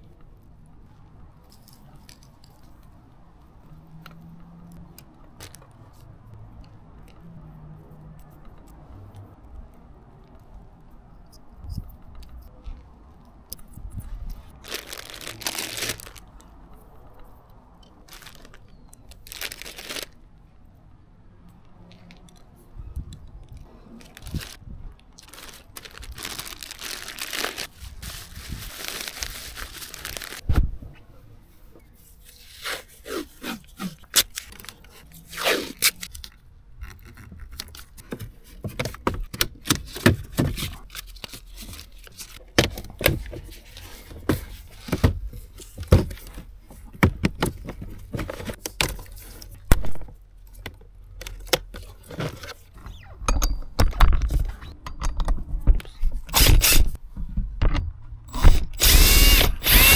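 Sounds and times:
plastic bags crinkling: 14.6 - 16.4, 18.1 - 20.2, 24.0 - 24.6, 25.2 - 30.5
cordless drill running: 56.3 - 56.9, 58.4 - 59.9.

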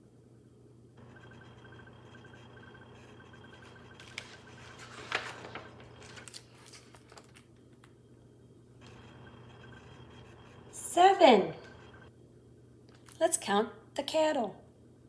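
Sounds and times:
faint low hum: 0.0 - 15.0
page turning: 4.0 - 7.9.

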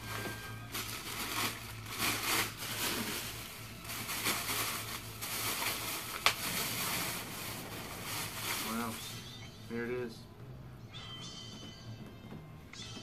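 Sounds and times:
plastic bag and cloth rustling: 0.0 - 9.4.

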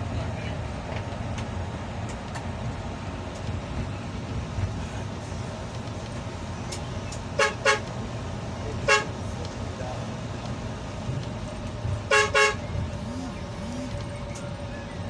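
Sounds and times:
bus engine rumble: 0.0 - 15.0
bus horn blasts: 7.3 - 8.0, 8.8 - 9.3, 12.0 - 14.3.

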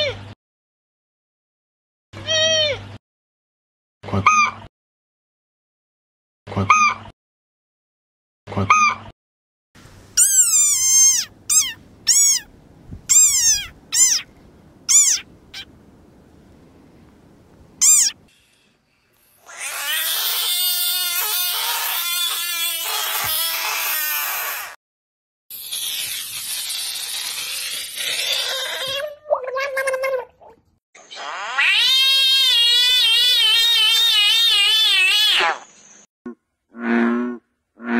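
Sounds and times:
frogs screaming: 10.2 - 12.5, 13.1 - 14.3, 14.9 - 15.7, 17.8 - 18.2, 19.4 - 24.6, 31.0 - 35.8.

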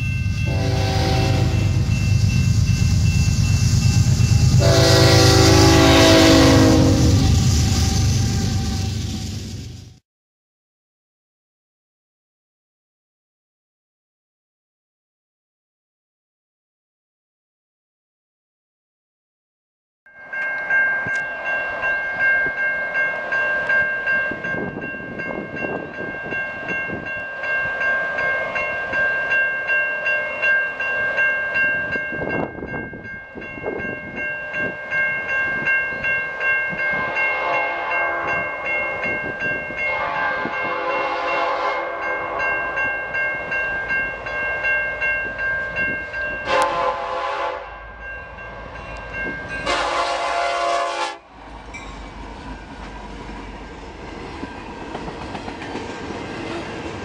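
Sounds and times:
railroad crossing bell ringing: 0.0 - 9.6, 20.1 - 57.0
locomotive horn blasts: 0.5 - 1.9, 4.5 - 9.0, 36.9 - 38.5, 39.9 - 42.6, 46.4 - 47.9, 49.6 - 51.3.

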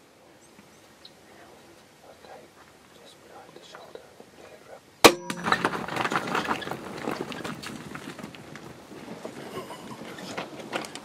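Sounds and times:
hooves galloping on stony ground: 5.4 - 11.0.

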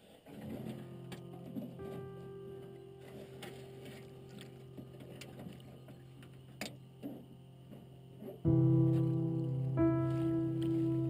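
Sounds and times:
soft held music tone: 0.0 - 11.0
boat washing on calm water: 0.4 - 7.2.

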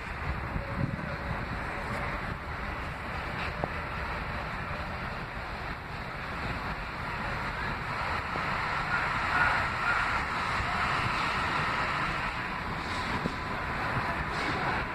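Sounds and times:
train rumbling on tracks: 0.0 - 14.9
wind buffeting microphone: 0.0 - 14.9.

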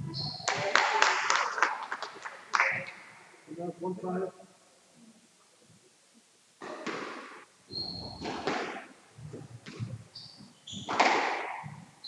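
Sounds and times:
shoes squeaking on court floor: 0.0 - 0.7, 6.6 - 12.0
squash ball smacking off walls: 6.6 - 7.4, 8.2 - 8.9, 10.8 - 11.8.

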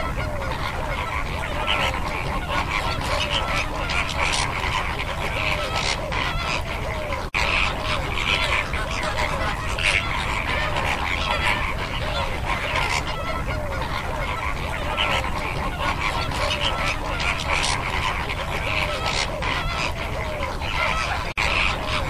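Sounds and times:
flamingos honking: 0.0 - 22.0.

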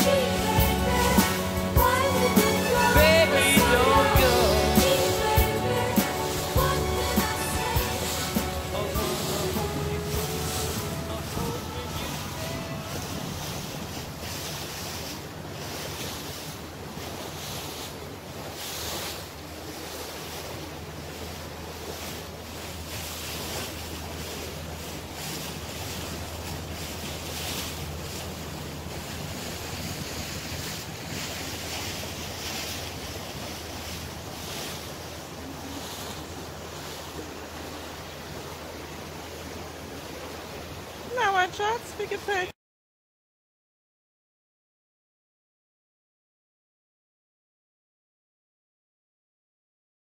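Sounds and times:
motorboat engine humming: 0.0 - 42.5
water rushing past hull: 0.0 - 42.6
wind buffeting microphone: 8.9 - 18.6.

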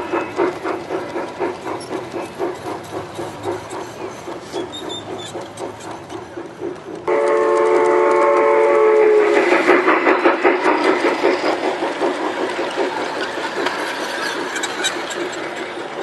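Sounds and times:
train cars clicking on track: 0.0 - 16.0
model steam train whistle: 7.1 - 9.4.

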